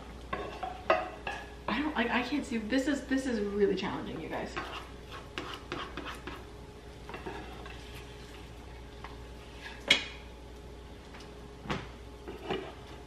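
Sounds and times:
eggs sizzling: 0:00.0 - 0:13.0
spatula scraping frying pan: 0:04.4 - 0:06.5, 0:07.1 - 0:08.6, 0:12.3 - 0:13.0.

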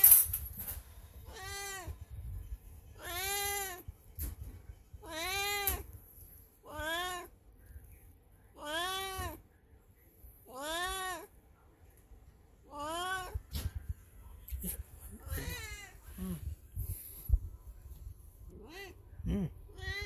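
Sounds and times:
cat meowing: 0:01.2 - 0:02.0, 0:03.0 - 0:03.8, 0:05.0 - 0:05.9, 0:06.6 - 0:07.3, 0:08.5 - 0:09.4, 0:10.5 - 0:11.3, 0:15.2 - 0:16.0, 0:18.5 - 0:19.0, 0:19.7 - 0:20.0.

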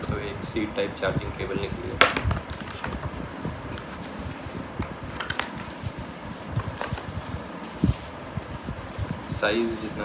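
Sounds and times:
cardboard packaging being handled: 0:02.3 - 0:10.0.

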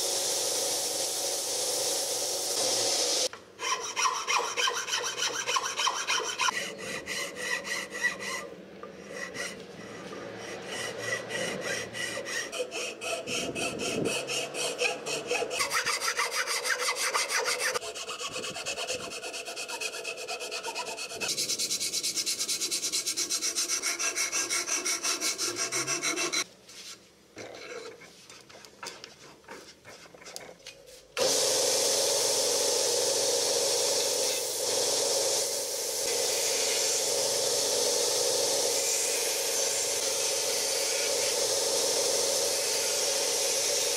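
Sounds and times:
file rasping on wood: 0:03.6 - 0:26.5.

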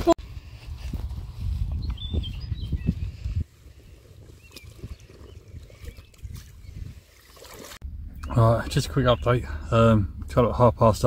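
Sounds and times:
faint bird chirps: 0:01.8 - 0:07.4
water sloshing at bank: 0:04.0 - 0:07.8.

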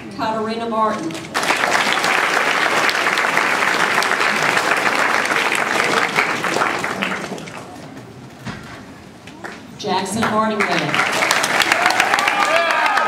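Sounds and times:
audience applauding: 0:01.2 - 0:07.8, 0:10.6 - 0:13.0.

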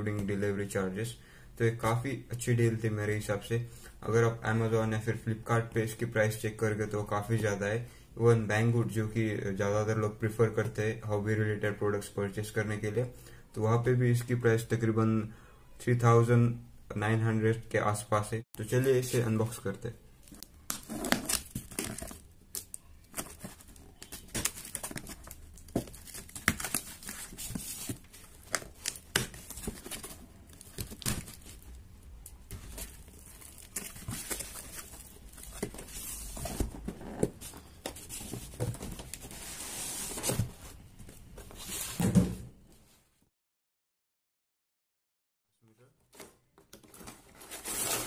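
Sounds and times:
cardboard and tape tearing: 0:20.7 - 0:31.6, 0:47.0 - 0:48.0.

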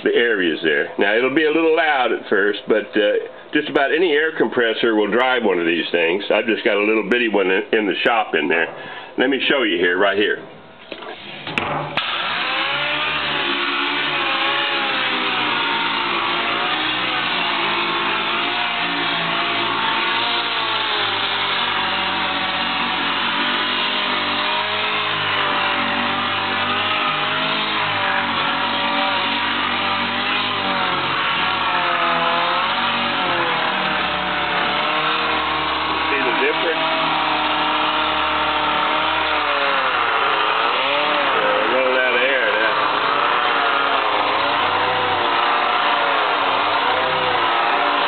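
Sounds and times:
orbital sander whirring on steel: 0:11.2 - 0:48.0.

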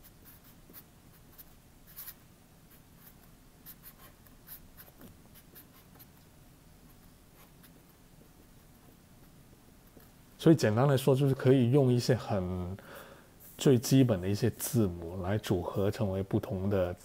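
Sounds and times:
marker scratching on paper: 0:00.0 - 0:06.2, 0:06.8 - 0:09.0.

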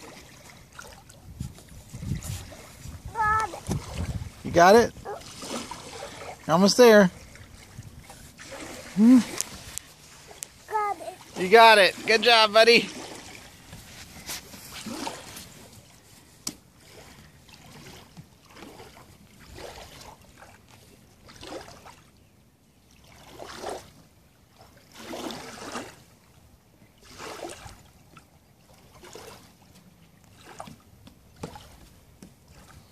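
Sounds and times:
waves lapping against dock: 0:00.0 - 0:32.9.

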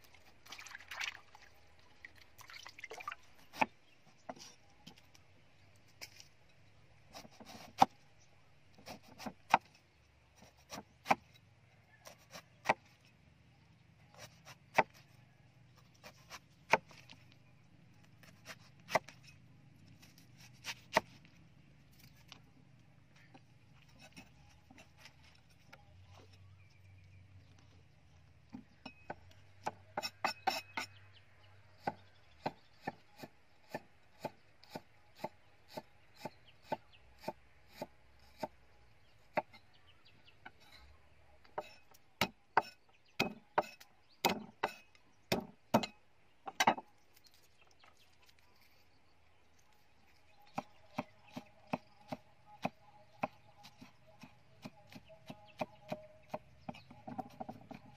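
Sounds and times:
cleaver chopping on wooden block: 0:41.6 - 0:46.8.

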